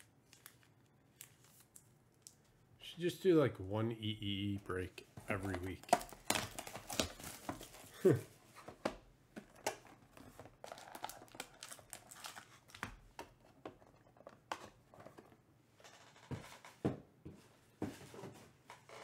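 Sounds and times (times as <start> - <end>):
cards rustling and crinkling: 0.0 - 2.6, 5.0 - 15.3.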